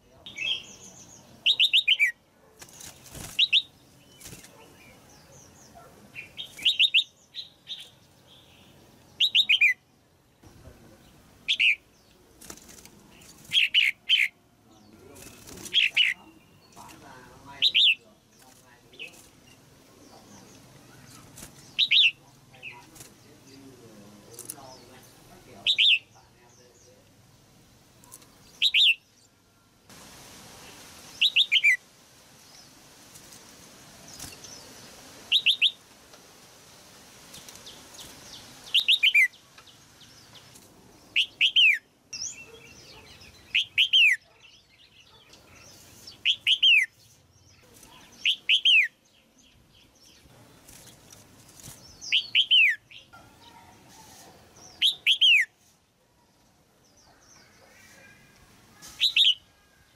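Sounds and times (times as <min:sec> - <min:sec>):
bird calling with falling whistles: 0:31.2 - 0:31.8, 0:35.3 - 0:35.8, 0:38.7 - 0:39.4, 0:46.2 - 0:47.0, 0:52.0 - 0:53.0, 0:54.7 - 0:55.5, 0:58.9 - 0:59.7.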